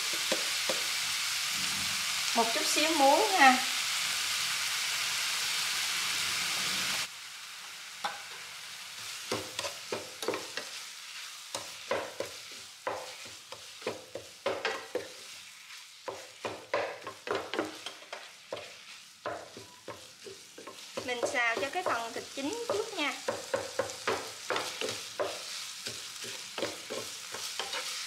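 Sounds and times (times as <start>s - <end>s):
meat sizzling in a frying pan: 0.0s - 28.0s
wooden spatula scraping a pan: 9.0s - 28.0s.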